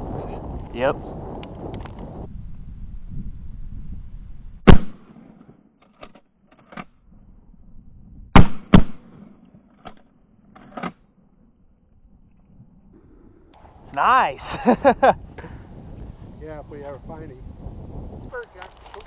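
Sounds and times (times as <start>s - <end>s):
shotgun shots: 4.6s - 5.6s, 8.4s - 10.0s.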